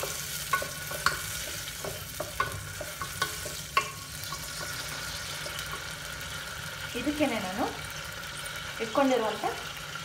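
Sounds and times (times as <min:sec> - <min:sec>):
wooden spoon knocking pot: 0:00.0 - 0:04.5
peas sizzling in hot oil: 0:00.0 - 0:10.0.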